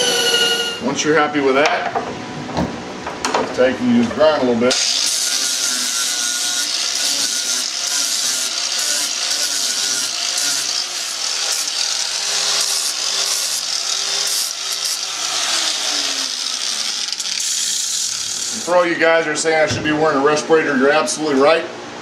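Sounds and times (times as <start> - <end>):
angle grinder sanding fiberglass: 4.7 - 18.9.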